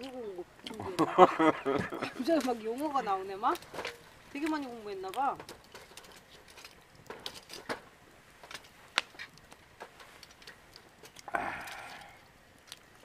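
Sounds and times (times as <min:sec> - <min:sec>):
campfire crackling and popping: 0:00.0 - 0:13.0
scraping rustle: 0:01.9 - 0:12.1.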